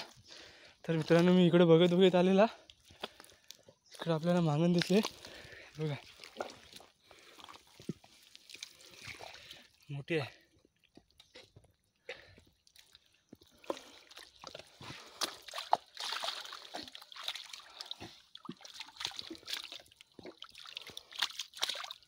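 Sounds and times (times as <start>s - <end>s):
fish splashing in muddy water: 4.7s - 9.8s, 12.6s - 22.0s.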